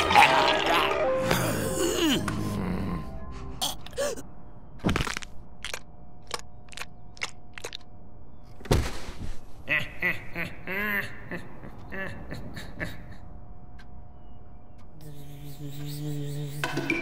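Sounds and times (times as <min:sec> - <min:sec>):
voice: 0:15.0 - 0:17.0.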